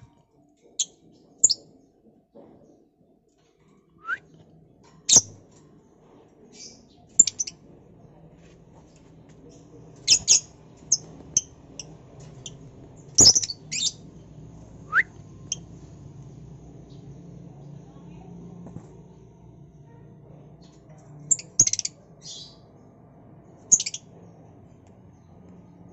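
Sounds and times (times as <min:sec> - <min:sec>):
lovebirds chirping: 0:06.6 - 0:07.6, 0:09.5 - 0:15.8, 0:20.6 - 0:22.7, 0:23.6 - 0:24.1.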